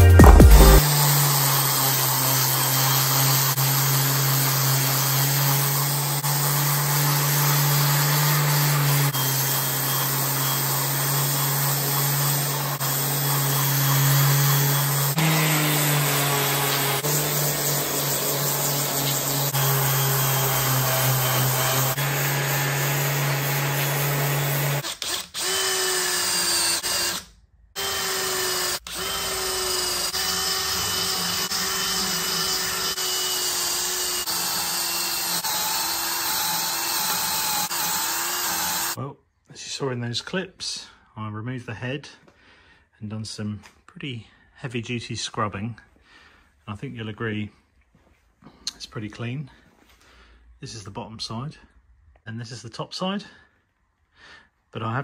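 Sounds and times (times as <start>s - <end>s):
orbital sander motor hum: 0.0s - 24.8s, 27.8s - 39.0s
drill spinning wire wheel whine: 0.8s - 27.2s, 27.8s - 39.0s.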